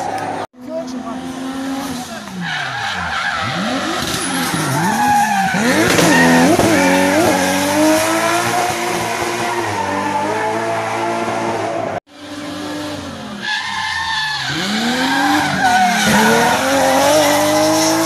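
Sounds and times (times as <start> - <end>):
race car engine revving: 0.0 - 13.4, 14.4 - 18.0
tyre squeal: 2.4 - 7.4, 13.4 - 17.9.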